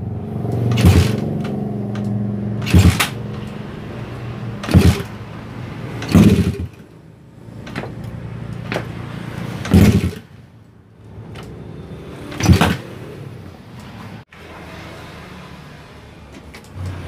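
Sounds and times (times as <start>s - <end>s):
motorcycle kick-start: 0.6s - 3.2s, 4.6s - 5.2s, 6.0s - 6.8s, 9.6s - 10.3s, 12.3s - 12.8s
engine firing bang: 0.7s - 1.5s, 2.6s - 3.2s, 4.6s - 5.2s, 6.0s - 6.8s, 9.6s - 10.3s, 12.3s - 12.9s.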